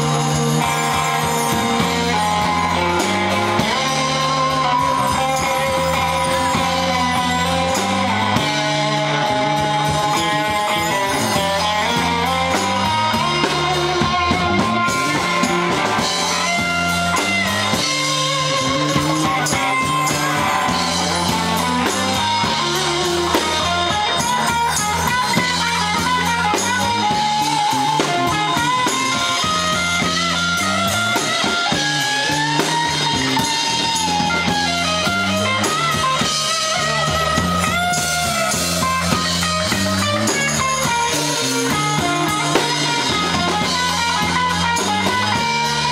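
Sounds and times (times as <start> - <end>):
bass guitar: 0.0 - 45.9
drum kit: 0.0 - 45.9
electric guitar lead lines: 0.0 - 45.9.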